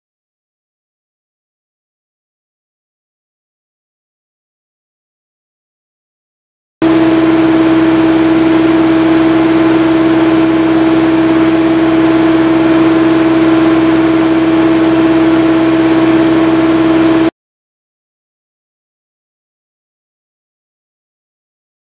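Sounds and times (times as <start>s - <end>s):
hydraulic drive humming: 6.8s - 17.3s.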